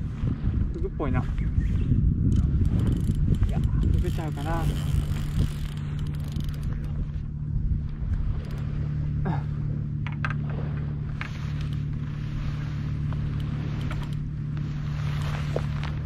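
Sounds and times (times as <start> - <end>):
engine idling hum: 0.0 - 16.0
faint clicks: 13.1 - 14.3.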